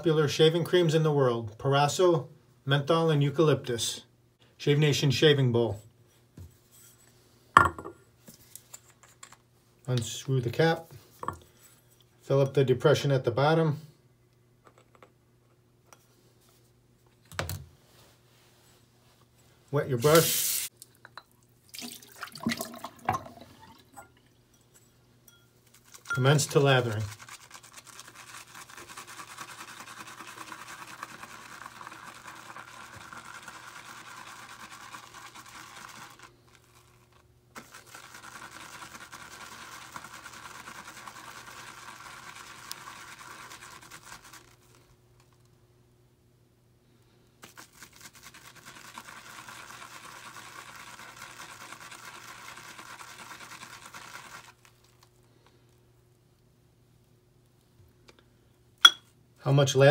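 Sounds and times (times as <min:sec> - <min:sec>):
shaving brush swishing in bowl: 0:19.9 - 0:20.7, 0:25.6 - 0:44.9, 0:47.4 - 0:54.7.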